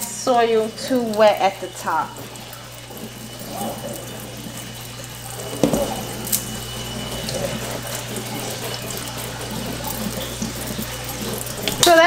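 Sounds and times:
faucet water running into sink: 0:00.0 - 0:12.0
knock: 0:05.6 - 0:05.9.

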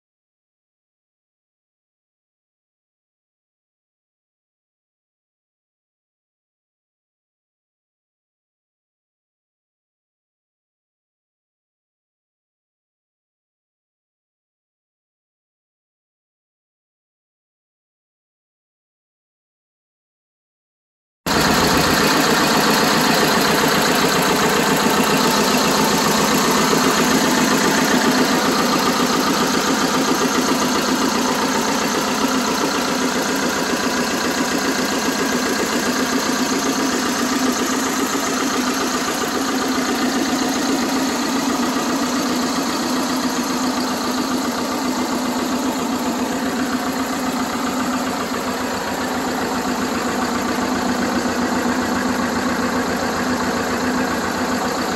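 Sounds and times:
tractor diesel engine idling: 0:21.3 - 0:54.9.

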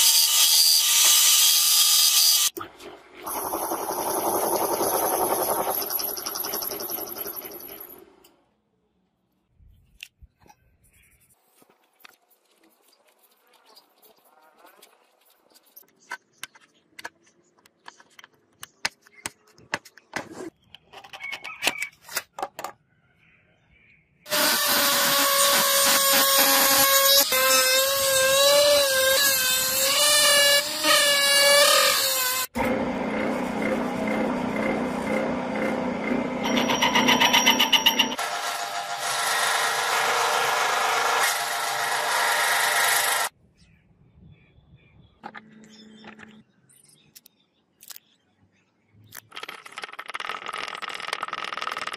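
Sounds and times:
rotary tool whining cutting brass: 0:03.3 - 0:08.0, 0:24.3 - 0:38.4
metal lathe running: 0:32.6 - 0:38.3.

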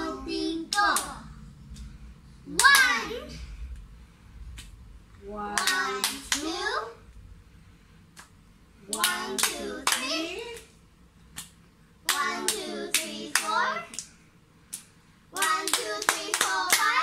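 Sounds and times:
girls chanting: 0:00.0 - 0:01.3, 0:08.9 - 0:10.6, 0:12.0 - 0:14.0, 0:15.4 - 0:17.0
palm claps: 0:05.6 - 0:06.5, 0:08.1 - 0:10.7, 0:11.3 - 0:14.1, 0:14.7 - 0:17.0.

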